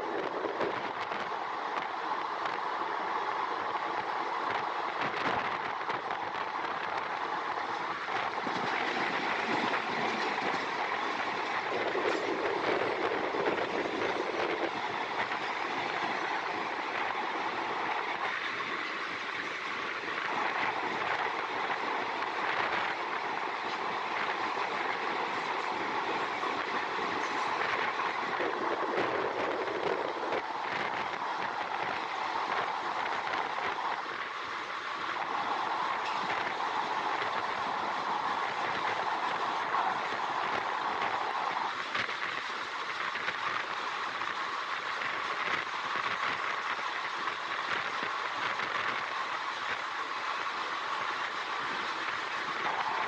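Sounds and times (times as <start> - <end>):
freight train wheels on rails: 0.0 - 53.0
train running noise: 0.0 - 53.0.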